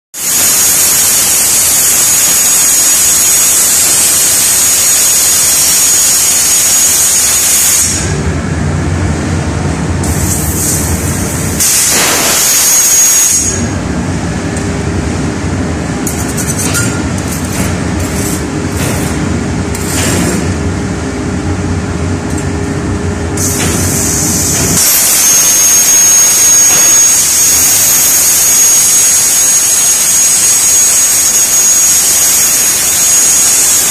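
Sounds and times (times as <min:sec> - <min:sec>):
plasma torch hissing and whistling: 0:00.2 - 0:08.2, 0:10.0 - 0:13.7, 0:23.4 - 0:33.9
low machine hum: 0:07.9 - 0:32.3.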